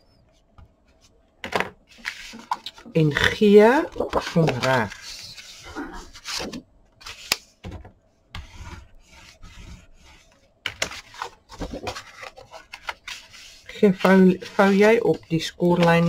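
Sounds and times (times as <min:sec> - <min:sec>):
card panels rustling: 0:03.6 - 0:07.5, 0:10.7 - 0:16.0.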